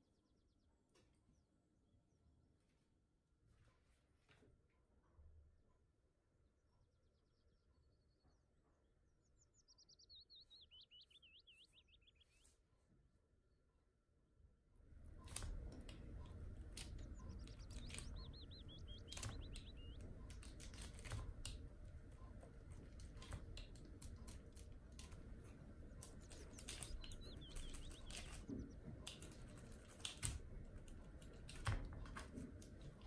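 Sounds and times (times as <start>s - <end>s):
small bird chirping: 7.1s - 12.6s, 15.2s - 21.4s, 22.2s - 30.2s.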